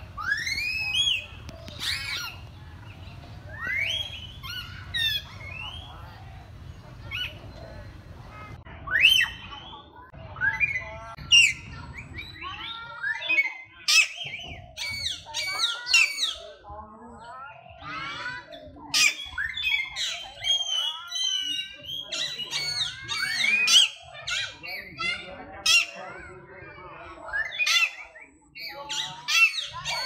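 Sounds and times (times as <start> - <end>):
parakeets and mynas squawking: 0.0 - 30.0.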